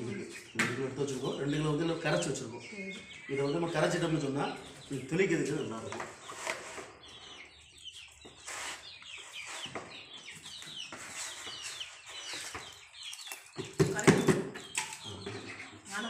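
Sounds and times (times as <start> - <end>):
chicken clucking: 0.0 - 16.0.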